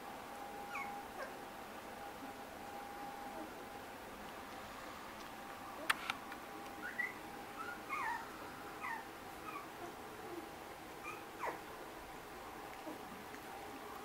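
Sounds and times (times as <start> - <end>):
puppies squeaking and whimpering: 6.8 - 10.4, 11.0 - 11.6.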